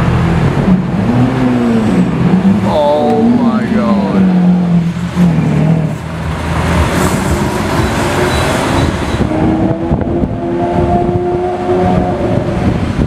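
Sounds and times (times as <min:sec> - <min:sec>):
another vehicle engine: 0:00.0 - 0:13.0
street traffic noise: 0:00.0 - 0:13.0.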